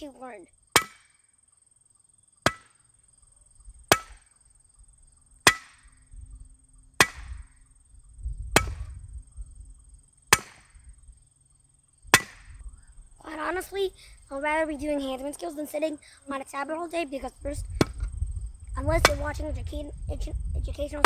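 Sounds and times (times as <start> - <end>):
hammer striking metal spike: 0.8 - 1.2, 2.5 - 2.7, 3.9 - 4.3, 5.5 - 5.8, 7.0 - 7.4, 10.3 - 10.8, 12.2 - 12.5.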